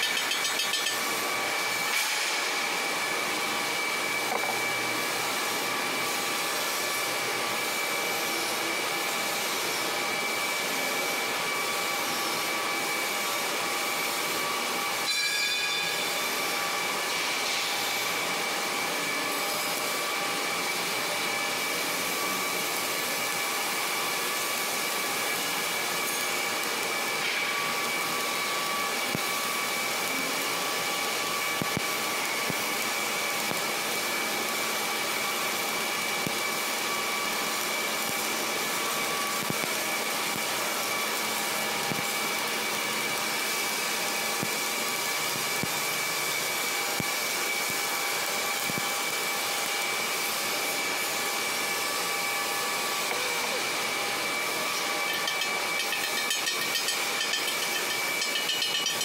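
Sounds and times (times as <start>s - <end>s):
high machine whine: 0.0s - 59.0s
machine hiss: 14.9s - 21.0s.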